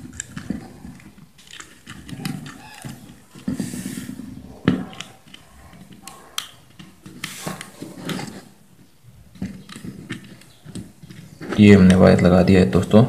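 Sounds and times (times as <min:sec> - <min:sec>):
small clicks and taps: 0:00.0 - 0:03.7, 0:04.6 - 0:12.3
light rustling: 0:00.0 - 0:12.4.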